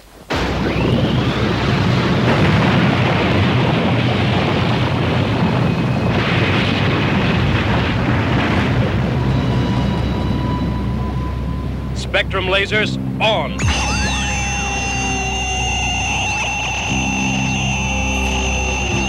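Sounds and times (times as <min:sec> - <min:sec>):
short rising whine: 0:00.3 - 0:04.6, 0:13.6 - 0:19.0
cartoon jet engine roar: 0:12.6 - 0:19.0.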